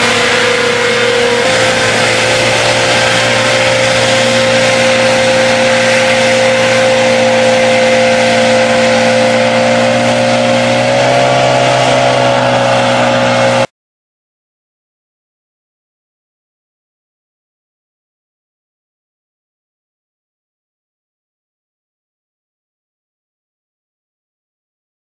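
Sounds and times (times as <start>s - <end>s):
hovercraft engine and fan: 0.0s - 13.7s
water spray: 0.0s - 13.7s.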